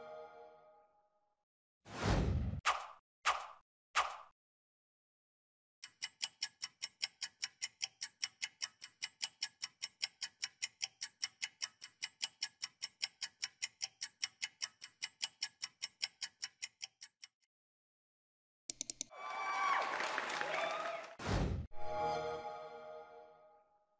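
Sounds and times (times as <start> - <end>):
clock ticking: 5.8 - 17.5, 18.7 - 19.1
quick clicks: 18.7 - 19.1.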